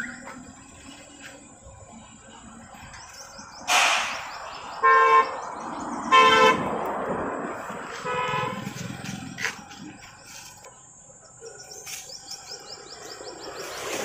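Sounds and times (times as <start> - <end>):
vehicle horn honking: 4.8 - 5.4, 6.1 - 6.7, 8.0 - 8.7.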